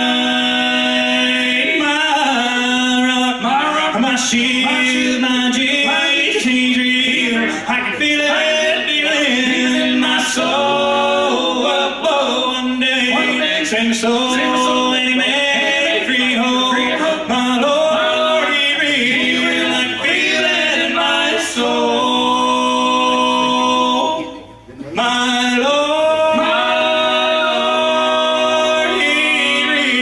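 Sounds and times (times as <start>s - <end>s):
men singing in harmony: 0.0s - 24.4s, 25.0s - 30.0s
acoustic guitar: 0.0s - 30.0s
upright bass: 0.0s - 30.0s
banjo: 3.4s - 25.0s.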